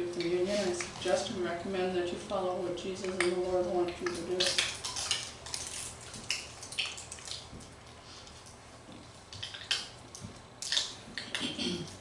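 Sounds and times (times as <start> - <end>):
plastic and foil crackling: 4.1 - 7.5.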